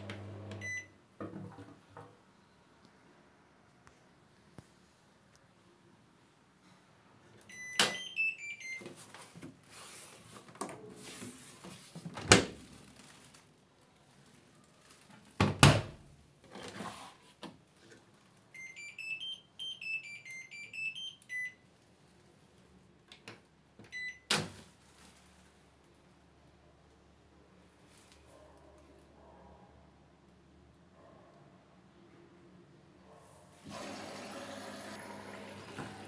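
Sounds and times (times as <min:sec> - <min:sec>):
washing machine beep tunes: 0:00.6 - 0:00.9, 0:07.5 - 0:08.9, 0:18.5 - 0:21.6, 0:23.9 - 0:24.3.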